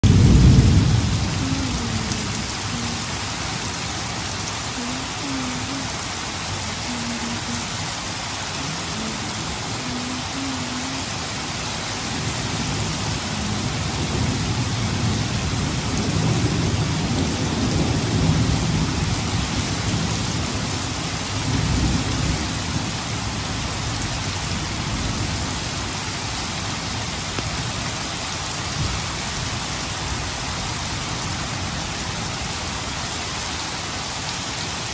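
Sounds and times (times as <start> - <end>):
thunder rumbling: 0.0 - 3.6, 12.0 - 25.8
heavy rain falling: 0.0 - 34.9.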